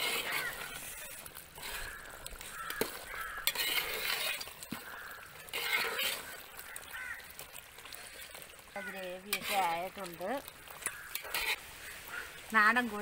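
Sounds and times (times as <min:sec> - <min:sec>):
crows cawing: 0:00.2 - 0:00.8, 0:01.6 - 0:07.4, 0:08.0 - 0:09.2, 0:10.6 - 0:12.4.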